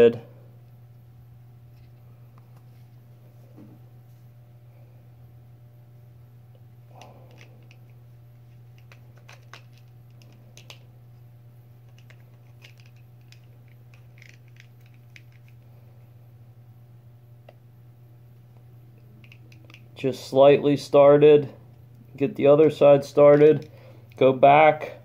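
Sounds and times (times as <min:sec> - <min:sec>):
steady low hum: 0:00.0 - 0:25.0
small plastic parts clicking: 0:08.8 - 0:10.8, 0:11.9 - 0:15.6, 0:19.2 - 0:19.9.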